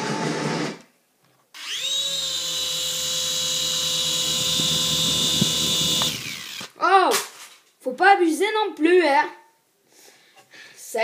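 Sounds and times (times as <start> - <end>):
rotors whirring: 1.6 - 6.7
toy helicopter motors whining: 1.6 - 6.7.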